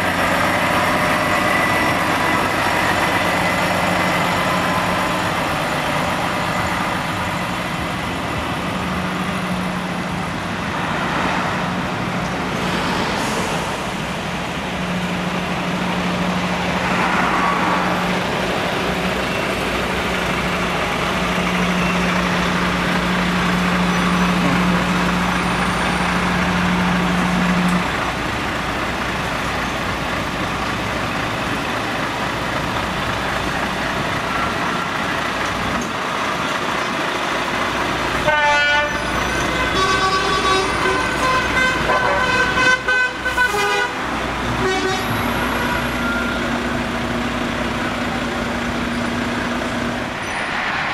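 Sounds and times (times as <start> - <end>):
lorry diesel engines idling: 0.0 - 50.6.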